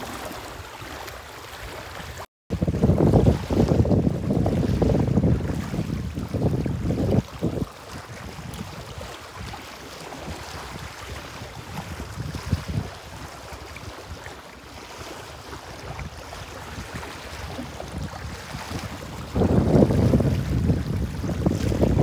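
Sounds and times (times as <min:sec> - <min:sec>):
small waves lapping on rocks: 0:00.0 - 0:02.3, 0:02.9 - 0:22.0
wind buffeting microphone: 0:01.9 - 0:22.0.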